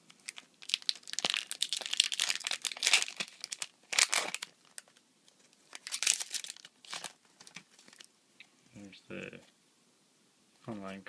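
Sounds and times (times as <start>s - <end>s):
foil wrapper tearing and crinkling: 0.2s - 5.0s, 5.7s - 8.1s.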